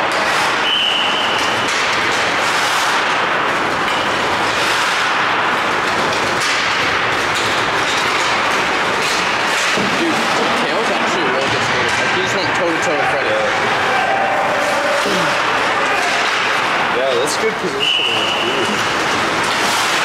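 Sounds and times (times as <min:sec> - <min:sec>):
skates on ice: 0:00.0 - 0:10.6, 0:18.1 - 0:20.0.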